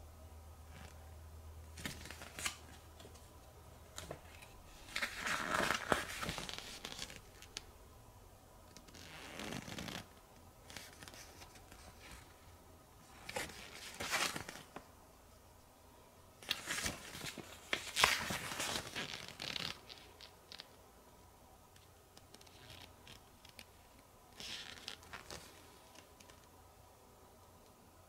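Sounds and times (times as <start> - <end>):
paper pages rustling: 1.8 - 3.3, 3.9 - 7.6, 13.1 - 14.9, 16.4 - 20.7.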